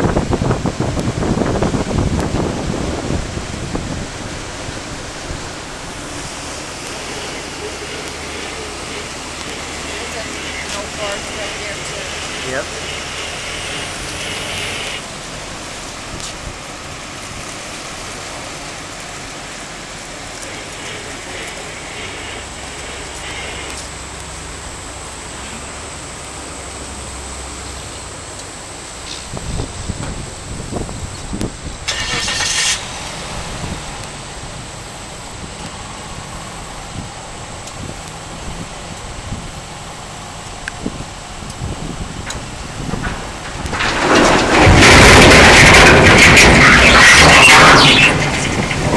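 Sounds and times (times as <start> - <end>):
wind on microphone: 0.0 - 9.9, 29.1 - 31.9, 32.8 - 39.8, 40.5 - 48.9
ferry engine humming: 0.0 - 48.9
water rushing: 0.0 - 48.9
loud hiss: 3.7 - 17.2, 19.4 - 48.9.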